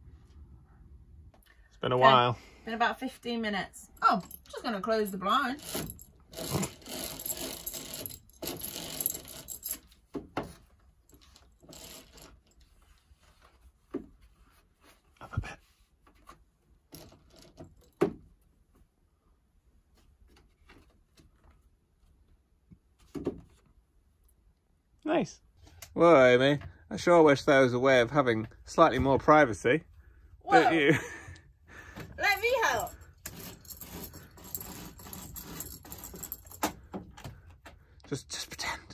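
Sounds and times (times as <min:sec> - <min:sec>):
metal bead chain rattling: 0:04.0 - 0:10.0, 0:11.1 - 0:12.6, 0:32.2 - 0:36.7
blind fabric rustling: 0:04.0 - 0:24.5, 0:32.2 - 0:38.4.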